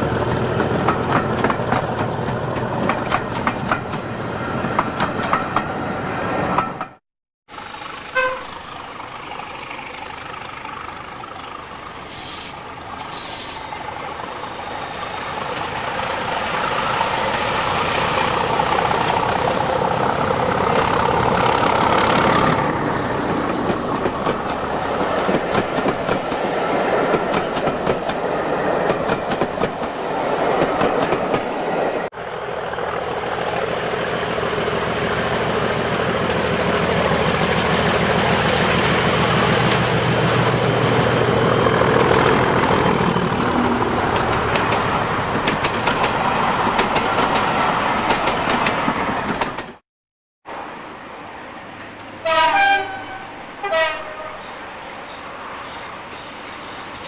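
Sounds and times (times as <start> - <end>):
coaches clattering over rails: 0.0 - 5.8, 18.4 - 31.9, 39.4 - 49.8
diesel locomotive engine whining: 0.0 - 49.8
train horn toot: 8.1 - 8.7, 52.2 - 54.5.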